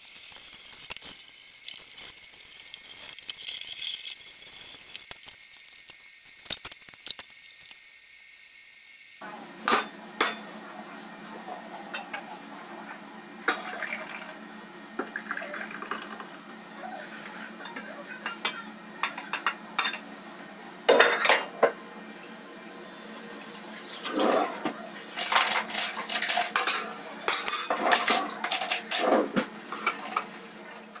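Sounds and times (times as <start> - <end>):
mugs and plates clinking: 15.0 - 16.4, 17.2 - 20.1, 20.8 - 21.8, 24.0 - 30.4
metal tray clattering: 25.2 - 30.3.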